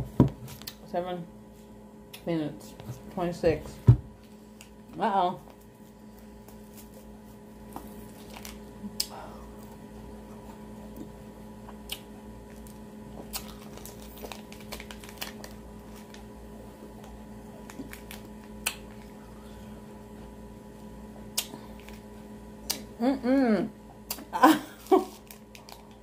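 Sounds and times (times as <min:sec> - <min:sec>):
steady low hum: 0:00.0 - 0:26.0
plastic sleeve crackling: 0:13.6 - 0:16.2.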